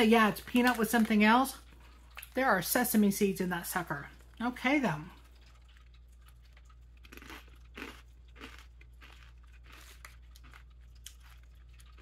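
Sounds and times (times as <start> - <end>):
person chewing crunchy snacks: 5.2 - 12.0.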